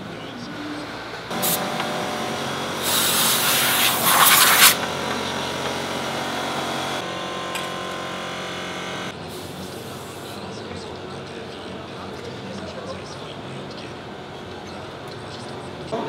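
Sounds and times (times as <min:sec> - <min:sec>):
steady background hum: 0:00.0 - 0:16.0
harsh rasping noise: 0:02.8 - 0:07.0.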